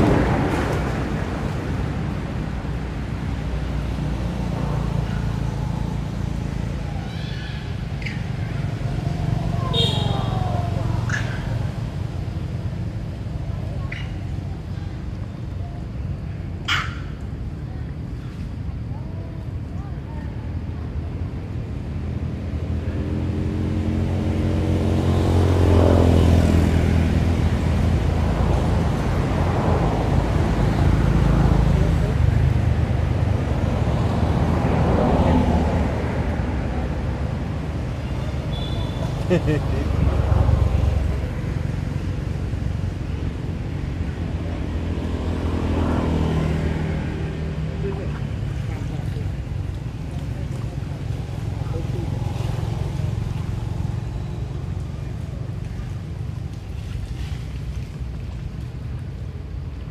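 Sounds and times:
vehicle engine passing: 21.9s - 59.0s.

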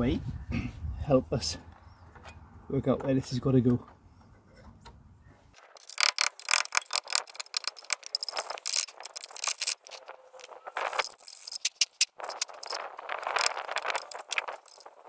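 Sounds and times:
screwdriver scraping rusty steel: 5.8s - 15.0s.

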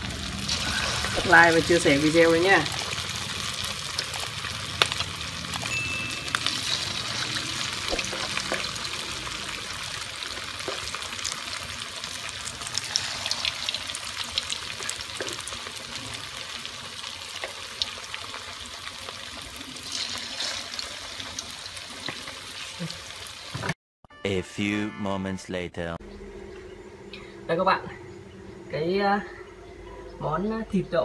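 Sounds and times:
oil sizzling and crackling: 0.0s - 23.8s
metal spoon moving in oil: 5.6s - 8.7s, 19.8s - 21.4s.

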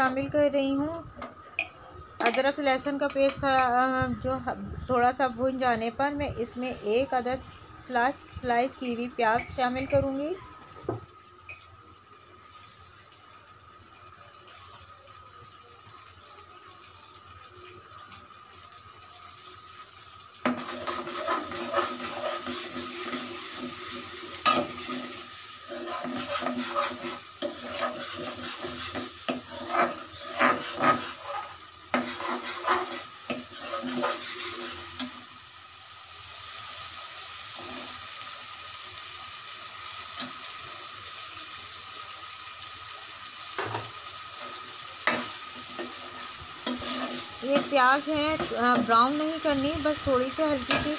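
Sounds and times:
paste sizzling in oil: 6.4s - 50.9s
metal ladle scraping a pan: 20.4s - 35.2s, 44.4s - 49.4s, 50.6s - 50.9s.

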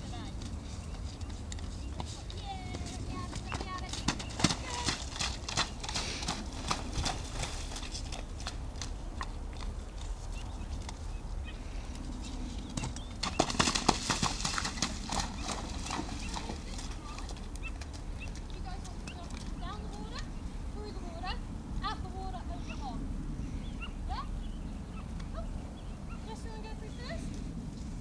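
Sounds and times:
horse hooves splashing through water: 0.2s - 10.2s, 12.8s - 20.2s.

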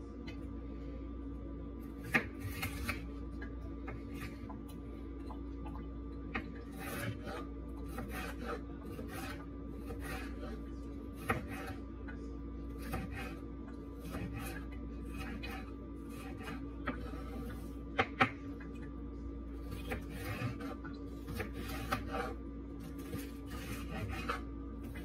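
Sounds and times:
steady hum: 0.0s - 25.0s
knife cutting pepper on board: 2.0s - 3.1s, 6.7s - 11.8s, 12.7s - 13.4s, 14.0s - 18.3s, 19.6s - 25.0s.

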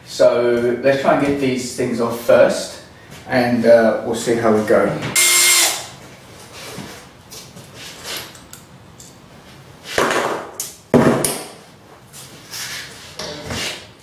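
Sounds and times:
cordless drill burst: 5.2s - 5.9s
rustling scrapes: 6.3s - 8.3s, 12.0s - 13.9s.

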